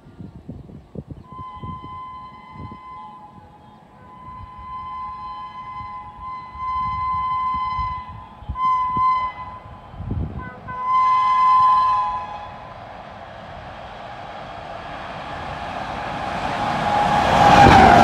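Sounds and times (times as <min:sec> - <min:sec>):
train rumble: 0:00.0 - 0:18.0
locomotive horn blasts: 0:01.2 - 0:12.8.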